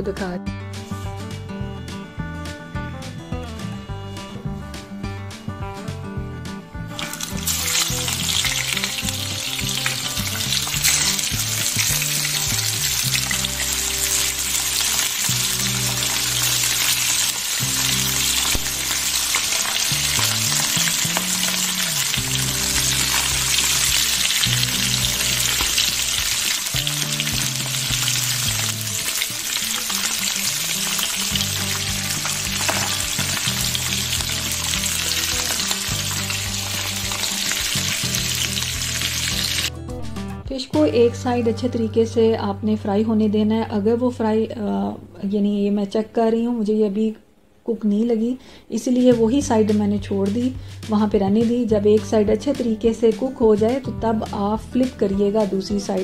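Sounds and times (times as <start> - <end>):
background music with bass: 0.0 - 44.6, 49.1 - 56.0
fish sizzling in frying pan: 6.9 - 39.7.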